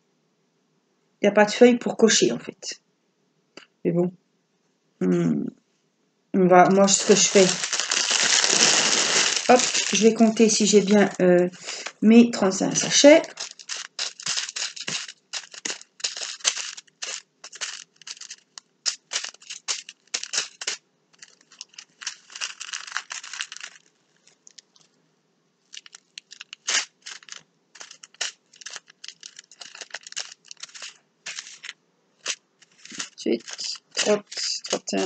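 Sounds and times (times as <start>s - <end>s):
plastic bags rustling: 6.6s - 25.0s, 25.7s - 35.0s
small beads shifting in bags: 6.6s - 25.0s, 25.7s - 35.0s.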